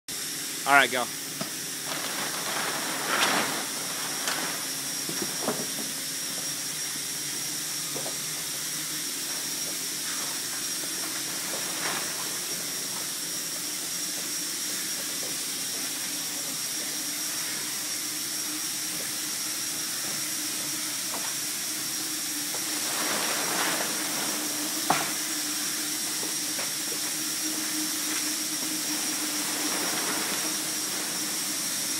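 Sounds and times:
steady hiss: 0:00.2 - 0:31.9
faint high whine: 0:20.0 - 0:31.9.

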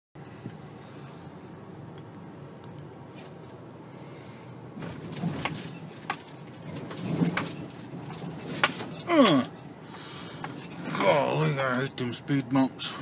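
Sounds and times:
vehicle body clunking and rattling: 0:04.7 - 0:12.2
short falling groan: 0:08.9 - 0:09.6.

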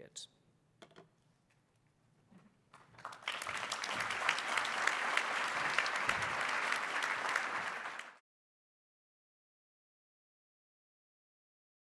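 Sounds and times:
audience applauding: 0:02.7 - 0:08.2.

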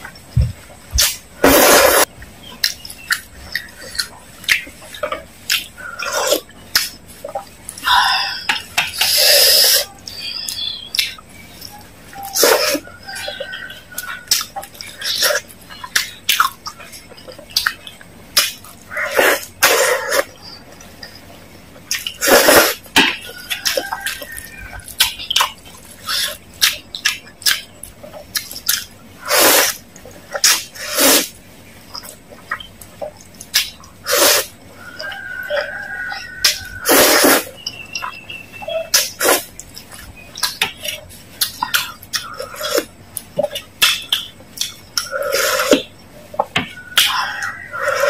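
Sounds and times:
wet chewing and mouth noises: 0:00.0 - 0:48.0
noodles slurped: 0:21.9 - 0:45.9.

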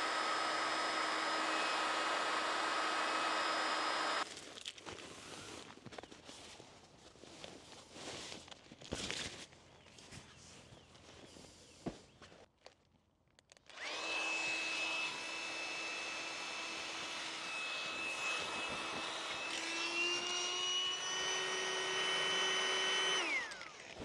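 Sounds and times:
small electric pump motor whine: 0:00.0 - 0:04.2, 0:13.7 - 0:24.0.

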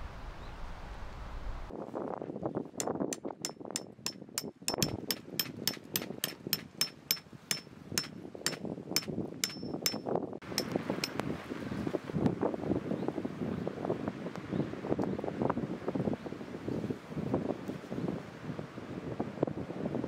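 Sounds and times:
hammer blows on tent peg: 0:02.8 - 0:11.2.

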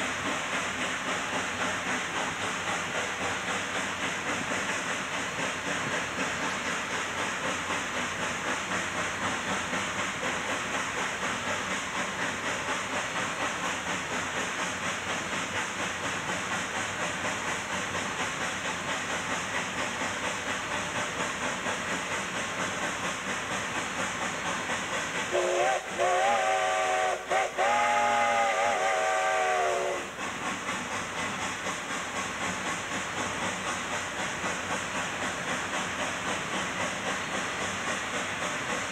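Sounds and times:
steam locomotive exhaust beat: 0:00.0 - 0:38.9
steam whistle blasts: 0:25.3 - 0:30.2.

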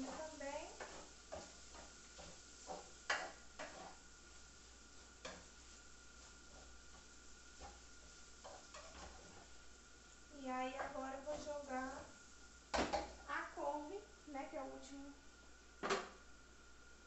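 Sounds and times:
utensil scraping frying pan: 0:00.0 - 0:13.6
faint frying sizzle: 0:00.0 - 0:17.0.

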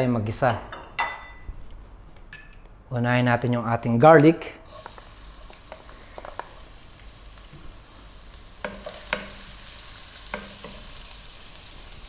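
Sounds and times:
garlic sizzling in hot oil: 0:04.6 - 0:12.0.

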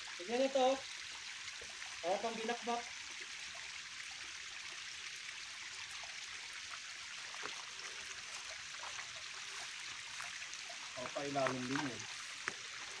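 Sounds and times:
stream water flowing: 0:00.0 - 0:13.0.

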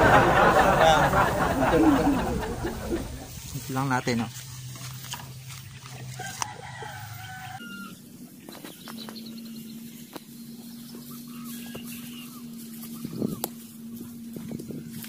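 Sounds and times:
low hum: 0:00.0 - 0:03.7
chickens calling: 0:00.0 - 0:04.1, 0:05.7 - 0:09.2.

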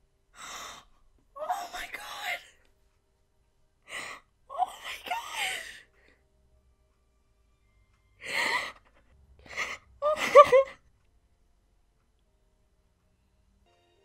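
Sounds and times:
woman sobbing: 0:03.9 - 0:05.9, 0:08.2 - 0:10.9.

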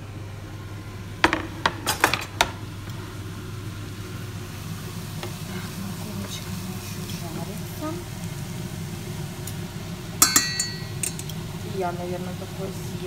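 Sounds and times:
steady low hum: 0:00.0 - 0:13.0
utensils knocking a frying pan: 0:01.2 - 0:02.6, 0:10.2 - 0:11.3.

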